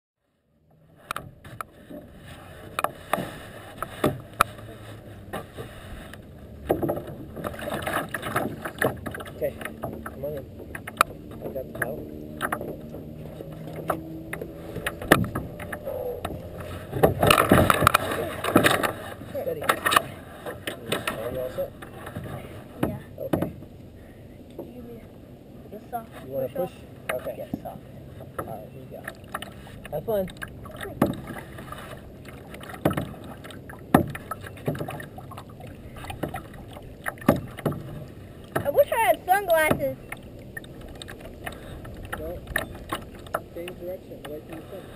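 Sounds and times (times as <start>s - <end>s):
low wash of water: 0.3s - 44.9s
paddle splashing water: 0.6s - 44.9s
knocks on plastic kayak hull: 32.8s - 33.2s, 33.9s - 35.0s, 37.1s - 38.0s.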